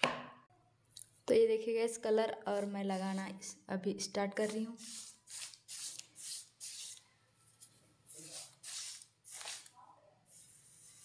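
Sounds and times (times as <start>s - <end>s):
paint brush strokes on wall: 2.5s - 3.4s, 4.5s - 11.0s.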